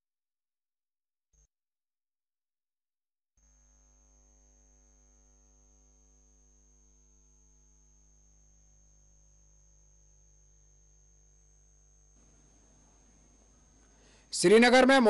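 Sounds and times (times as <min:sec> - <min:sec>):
faint electrical mains hum: 0:03.4 - 0:15.0
thin high-pitched whine: 0:03.4 - 0:15.0.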